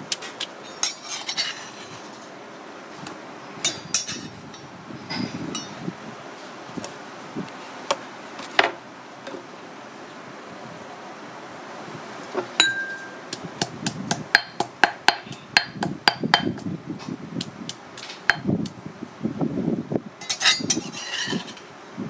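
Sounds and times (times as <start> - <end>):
metal utensil scraping mortar: 0.7 - 2.2, 20.2 - 21.6
stone pestle pounding in mortar: 12.6 - 16.6, 17.7 - 18.5.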